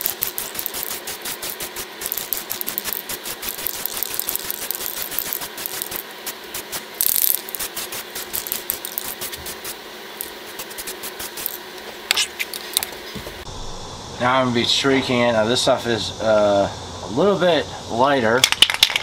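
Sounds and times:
spray can ball rattling: 0.0 - 13.0, 18.4 - 19.0
spray can hiss: 0.0 - 13.4.

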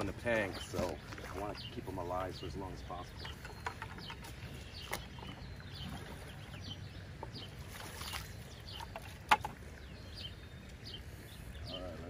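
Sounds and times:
bucket filling with lake water: 0.0 - 2.2, 2.9 - 9.8
water splashing and sloshing: 0.0 - 11.6
small birds chirping: 0.0 - 12.0.

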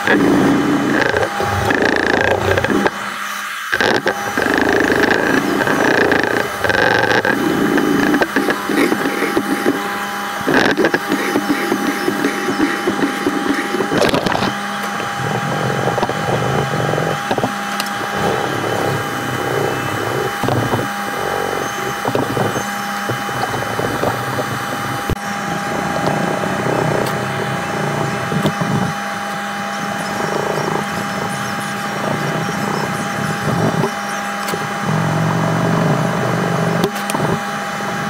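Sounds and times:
steady hum: 0.0 - 38.0
sandpaper rubbing on wood: 3.7 - 25.0.

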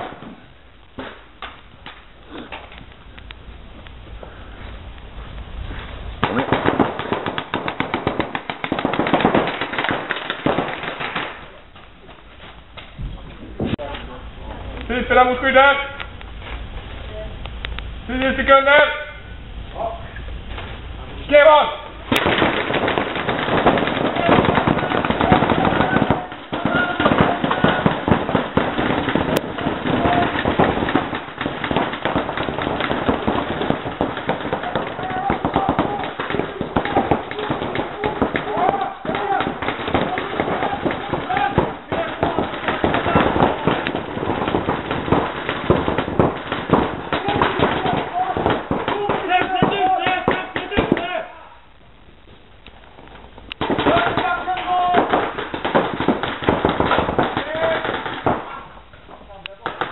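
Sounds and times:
paintball marker rapid fire: 6.2 - 11.6, 22.1 - 51.2, 53.6 - 58.7, 59.5 - 59.9.

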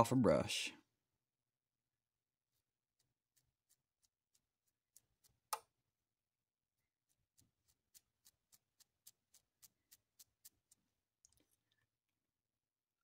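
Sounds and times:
toothpick ticking across brush bristles: 2.9 - 5.7, 7.1 - 11.4.

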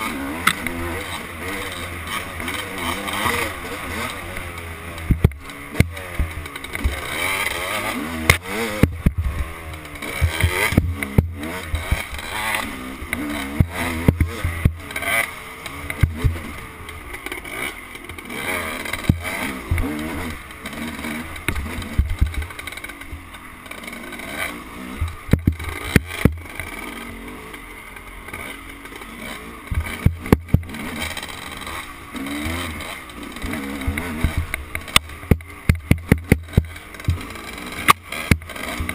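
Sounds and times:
dirt bike engine revving: 0.0 - 38.9
sharp knocks: 25.0 - 26.4.

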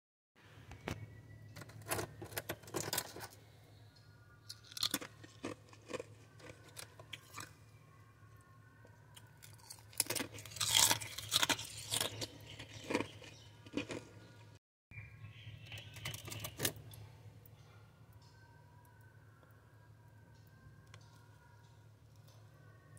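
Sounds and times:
ice being chewed: 4.5 - 7.6, 9.1 - 14.6.

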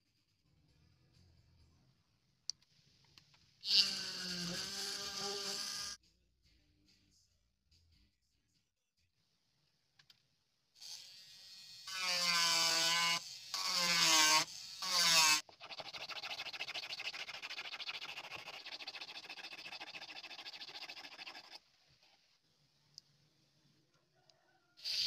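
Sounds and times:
block sanding back and forth: 12.0 - 21.6.

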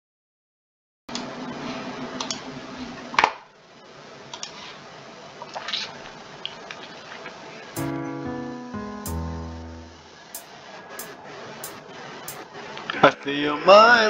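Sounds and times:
room noise: 7.5 - 13.0
karaoke backing track: 7.8 - 12.4.

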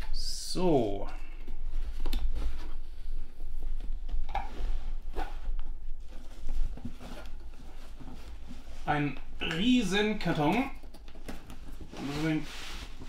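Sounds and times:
cardboard rubbing and scraping: 11.8 - 13.0.

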